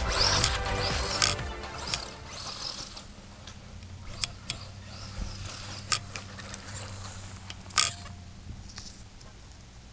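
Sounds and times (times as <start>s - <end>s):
electric motor humming: 0.0s - 7.7s.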